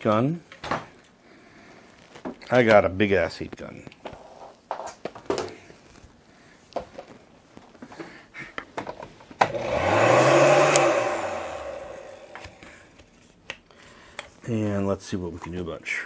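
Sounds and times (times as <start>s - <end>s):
heat gun fan whirring: 9.4s - 13.0s
heat gun switch click: 10.6s - 11.0s.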